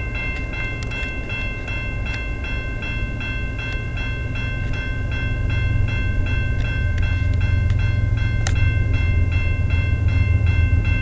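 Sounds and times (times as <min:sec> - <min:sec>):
level crossing warning bell ringing: 0:00.0 - 0:11.0
low rumble: 0:02.6 - 0:11.0.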